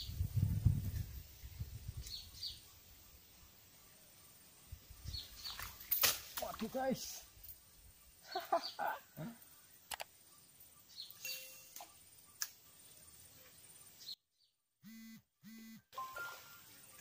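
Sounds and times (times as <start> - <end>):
sharp clicks: 9.8 - 10.1
short buzzing tones: 14.8 - 16.0.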